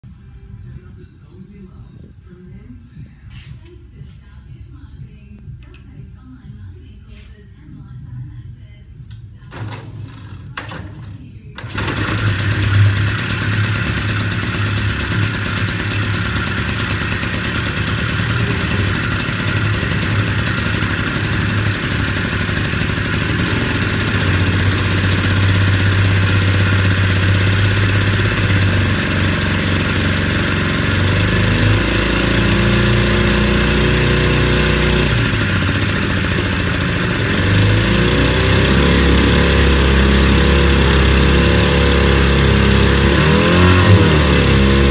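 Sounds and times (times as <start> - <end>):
two-stroke outboard engine running: 11.6 - 44.9.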